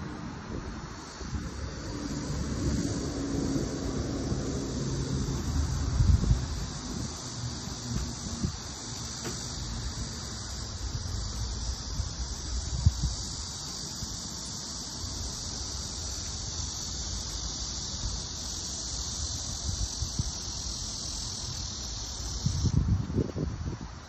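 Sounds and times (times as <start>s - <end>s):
wind rumble on microphone: 0.0s - 8.8s, 9.6s - 14.2s, 19.0s - 24.0s
cicadas buzzing: 0.0s - 24.0s.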